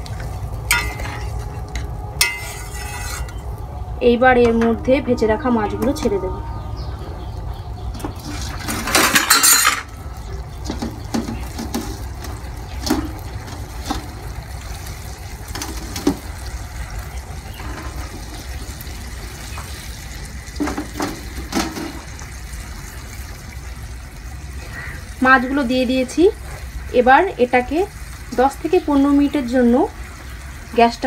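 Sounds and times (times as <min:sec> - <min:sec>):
low steady hum: 0:00.0 - 0:20.6.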